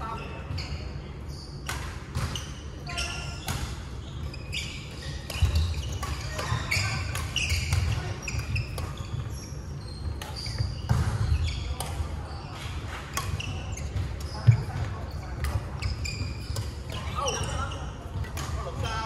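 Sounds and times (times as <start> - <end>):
shoes squeaking on wooden floor: 2.4 - 12.4
racket hitting shuttlecock: 5.0 - 9.3, 10.1 - 12.0, 12.6 - 15.8.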